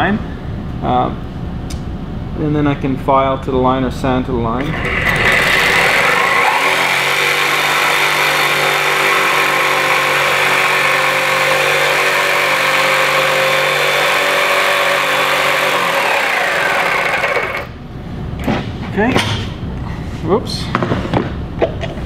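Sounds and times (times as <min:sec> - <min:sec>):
electric jigsaw cutting wood: 0:04.6 - 0:17.8.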